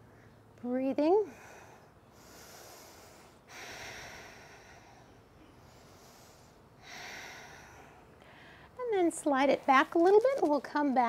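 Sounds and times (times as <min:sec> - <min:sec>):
person breathing slowly: 0:01.2 - 0:08.8.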